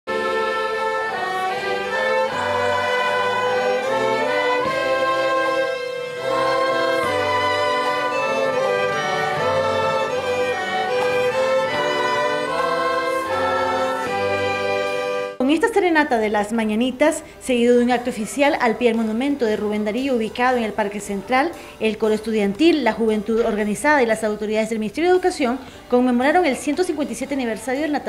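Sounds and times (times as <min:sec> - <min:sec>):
orchestra playing slow piece: 0:00.1 - 0:15.4.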